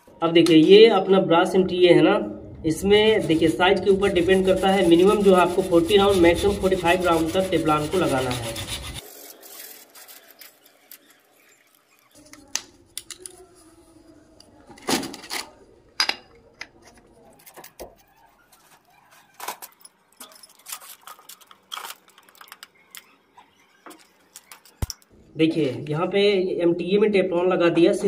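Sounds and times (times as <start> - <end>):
tape rustling: 4.0 - 15.6, 16.8 - 25.1.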